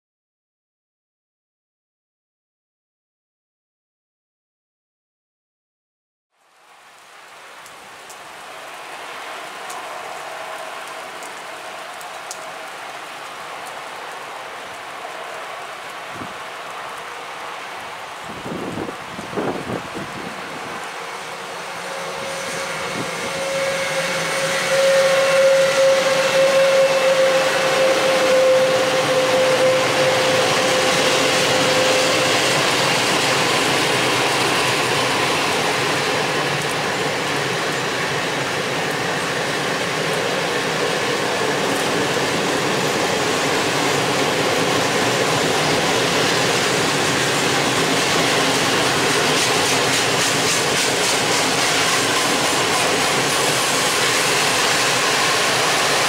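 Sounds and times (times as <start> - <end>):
train wheels on rails: 7.2 - 56.0
high whine: 21.6 - 36.3.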